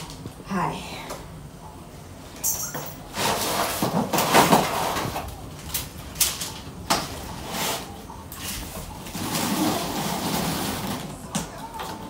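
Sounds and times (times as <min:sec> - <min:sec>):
plastic straps scraping cardboard: 0:09.1 - 0:11.2.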